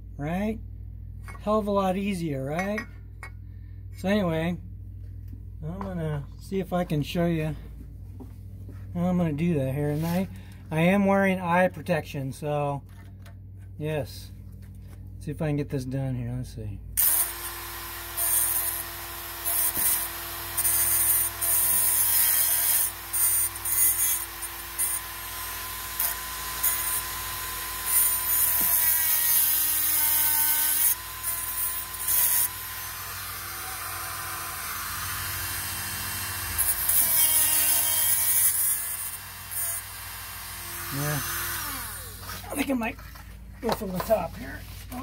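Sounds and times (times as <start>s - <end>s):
grinding metal: 17.0s - 42.4s
rotary tool whining: 17.0s - 42.5s.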